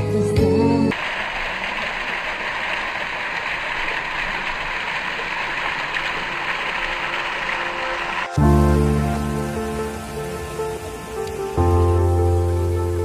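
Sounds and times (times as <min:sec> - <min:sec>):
background music: 0:00.0 - 0:00.9, 0:07.7 - 0:13.0
water splashing down rocks: 0:00.9 - 0:13.0.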